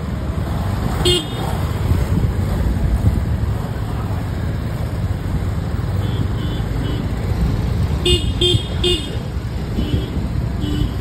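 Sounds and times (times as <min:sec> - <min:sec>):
traffic engines rumbling: 0:00.0 - 0:11.0
car horn beeps: 0:08.0 - 0:09.2, 0:09.8 - 0:11.0.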